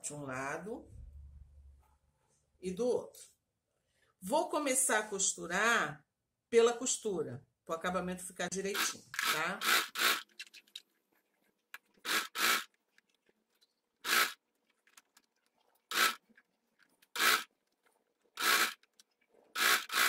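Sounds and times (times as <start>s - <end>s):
sewing machine stitching: 8.8s - 10.4s, 12.0s - 12.7s, 14.0s - 14.4s, 15.9s - 16.2s, 17.0s - 17.5s, 18.3s - 20.0s.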